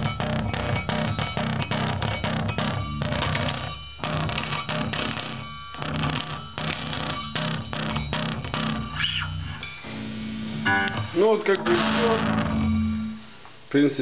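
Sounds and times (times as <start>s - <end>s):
bass guitar low notes: 5.8s - 13.3s.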